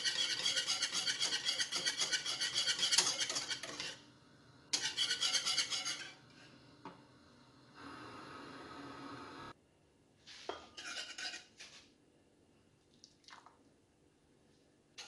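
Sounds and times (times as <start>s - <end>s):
whisk scraping a saucepan: 0.0s - 4.0s, 4.7s - 6.3s, 10.3s - 11.7s.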